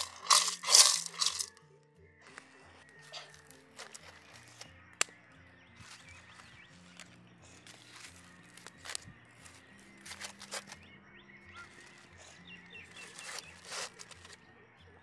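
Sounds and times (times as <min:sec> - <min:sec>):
foil crinkling on gravel: 0:00.0 - 0:01.5, 0:10.0 - 0:10.8, 0:12.9 - 0:14.4
soft background music: 0:00.0 - 0:15.0
birds chirping: 0:03.0 - 0:15.0.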